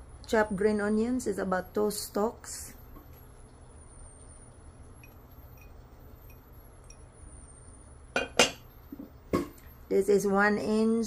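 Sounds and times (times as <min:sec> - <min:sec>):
faint steady hum: 0:00.0 - 0:11.0
ceramic bowl clinking on dish: 0:08.2 - 0:08.6.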